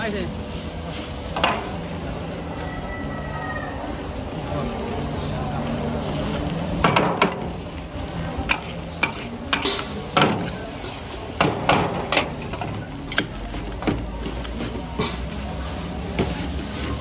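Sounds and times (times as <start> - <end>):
spatula clanking on a steel wok: 8.4 - 10.5.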